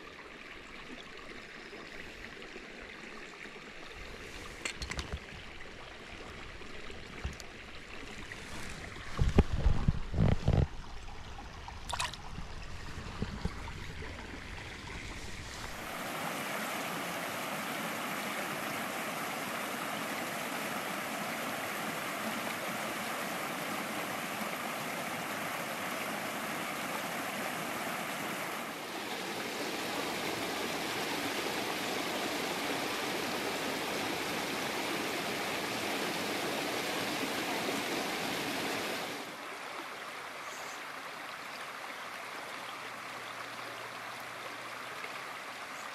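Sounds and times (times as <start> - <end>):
brook rushing over stones: 4.1 - 39.3.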